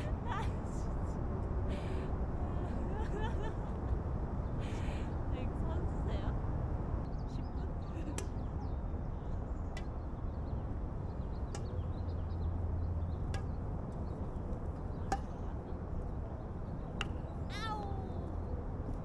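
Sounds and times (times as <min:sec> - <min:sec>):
steady low rumble: 0:00.0 - 0:19.0
racket striking shuttlecock: 0:08.1 - 0:08.5, 0:09.7 - 0:10.0, 0:11.4 - 0:15.6, 0:16.9 - 0:17.3.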